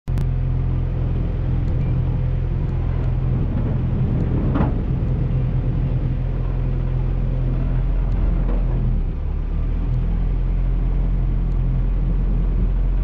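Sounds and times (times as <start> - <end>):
truck engine running at low speed: 0.1 - 13.0.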